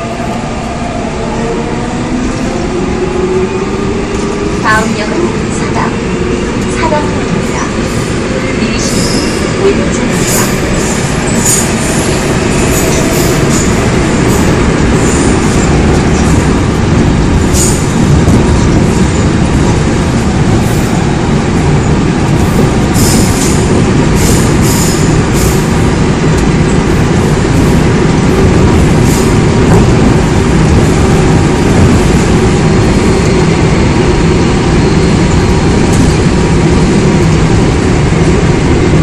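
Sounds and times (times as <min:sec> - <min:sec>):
train wheels rumbling: 0:00.0 - 0:39.0.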